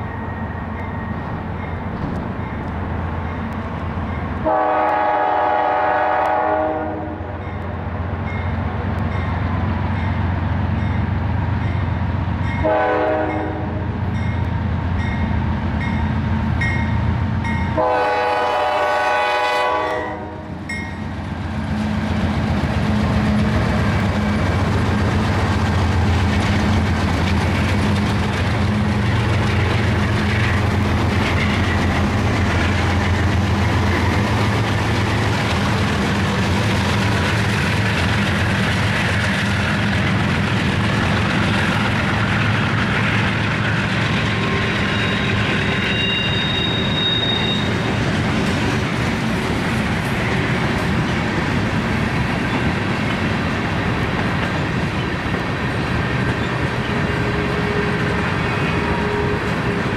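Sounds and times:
locomotive bell pinging: 0.0 - 4.4, 14.2 - 17.8, 20.7 - 21.1, 44.4 - 47.9
train horn blast: 4.4 - 7.5, 12.6 - 14.0, 17.7 - 20.7, 57.2 - 59.8.

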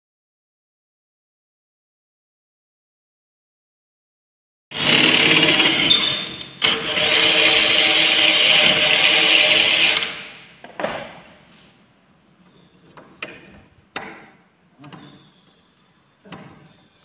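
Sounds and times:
cordless drill drilling into metal: 4.7 - 10.3.

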